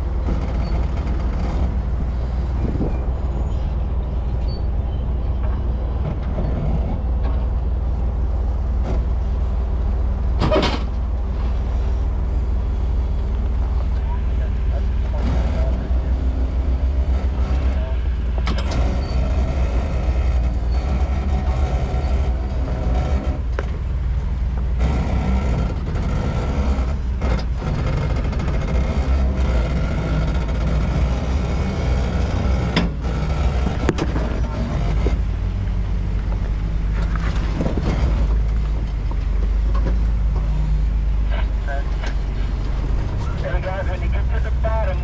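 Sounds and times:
vehicle engine rumbling: 0.0 - 45.0
sharp knocks and clicks: 24.5 - 35.3.

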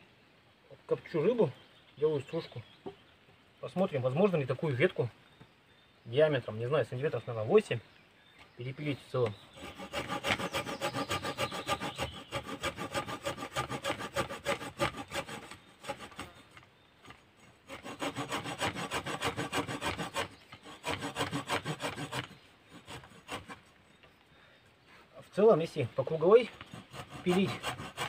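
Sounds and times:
saw rasping through branch: 9.2 - 23.8, 26.0 - 28.0.

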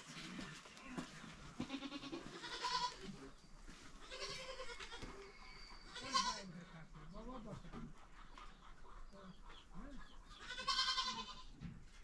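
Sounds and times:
goats bleating: 1.6 - 3.2, 4.0 - 5.2, 5.9 - 6.5, 10.4 - 11.5.

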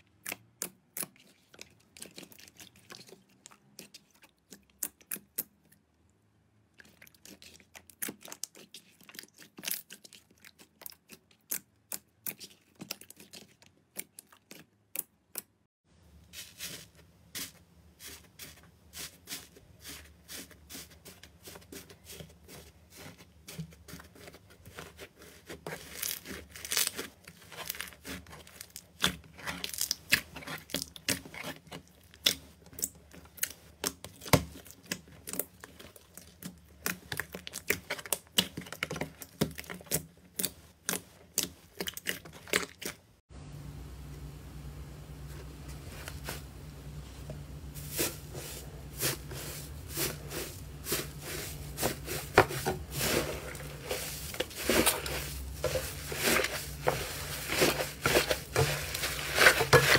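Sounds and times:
hands squishing slime: 0.0 - 5.8, 6.8 - 15.6, 16.4 - 43.1, 47.8 - 59.9
faint low hum: 43.3 - 59.6.

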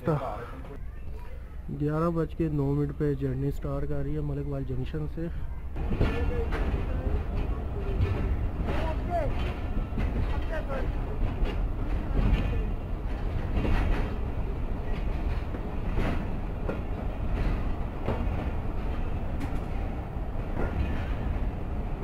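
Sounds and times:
train wheels rumbling on rail: 5.1 - 22.0
wheels clanking over rail joints: 5.7 - 22.0.

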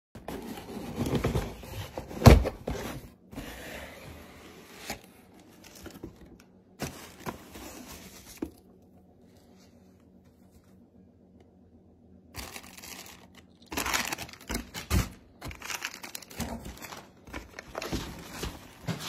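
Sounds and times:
cardboard flaps rustling and scraping: 0.2 - 8.6, 13.8 - 19.0.

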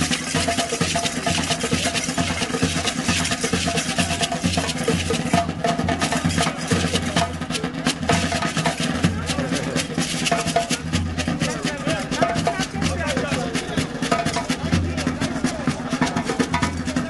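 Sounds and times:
percussion music: 0.0 - 17.0.

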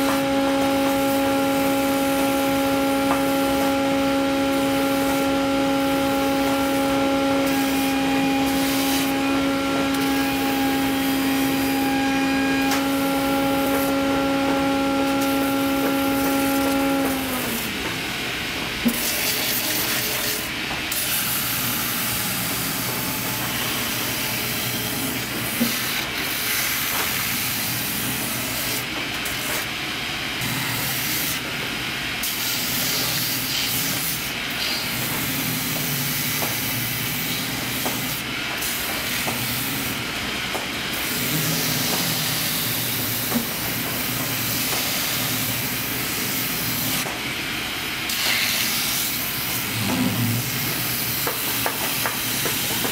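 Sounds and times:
low machine hum: 0.0 - 18.7, 49.5 - 51.2
machine rushing hiss: 32.2 - 52.9.

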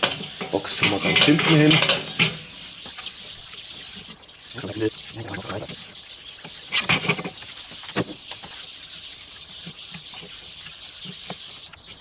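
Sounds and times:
charcoal clattering onto metal grate: 0.0 - 2.5.

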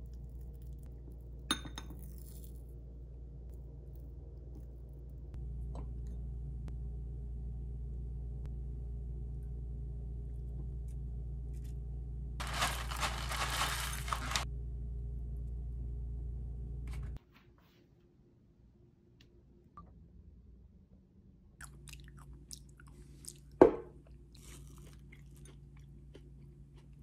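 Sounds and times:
low hum: 0.0 - 17.2
loud crinkling rustle: 12.4 - 14.5.

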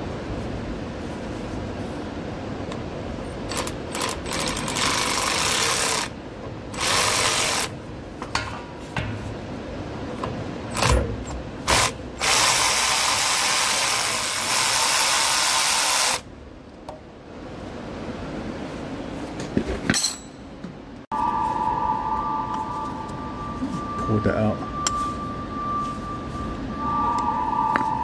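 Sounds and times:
powered ratchet running: 3.5 - 7.7, 11.7 - 16.2.

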